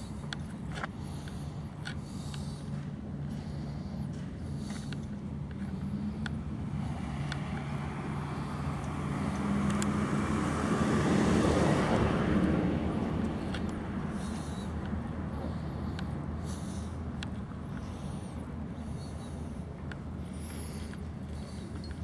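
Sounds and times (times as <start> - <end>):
steady low hum: 0.0 - 22.0
car passing: 5.8 - 22.0.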